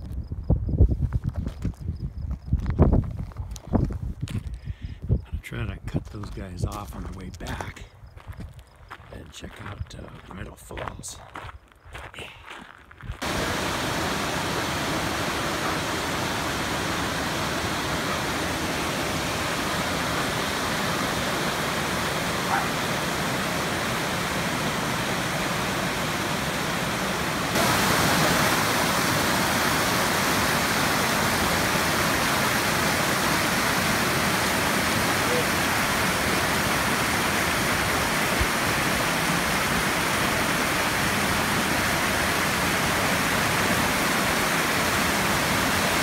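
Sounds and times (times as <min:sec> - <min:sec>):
rushing waterfall: 0:13.2 - 0:46.0.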